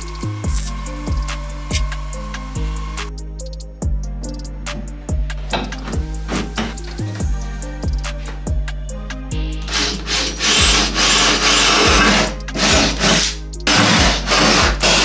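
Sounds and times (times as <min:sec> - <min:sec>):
background music: 0:00.0 - 0:15.0
cordless drill boring into steel: 0:09.7 - 0:15.0.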